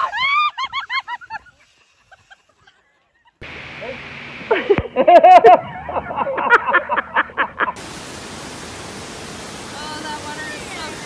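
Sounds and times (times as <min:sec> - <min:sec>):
whitewater rushing through creek: 0:07.8 - 0:11.0.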